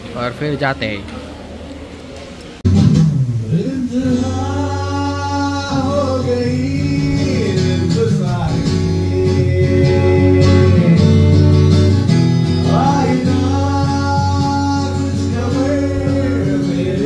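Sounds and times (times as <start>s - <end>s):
acoustic guitar strumming: 2.6s - 17.0s
man singing: 3.5s - 17.0s.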